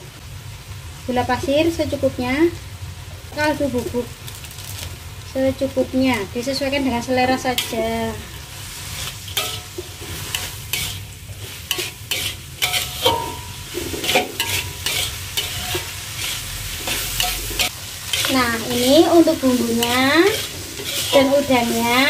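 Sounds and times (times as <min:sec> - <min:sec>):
food sizzling: 0:00.0 - 0:22.0
metal spatula scraping a wok: 0:06.2 - 0:22.0.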